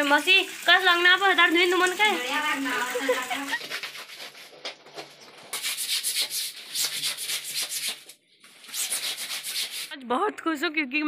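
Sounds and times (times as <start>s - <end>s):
wet clothes scrubbed by hand: 2.7s - 10.0s.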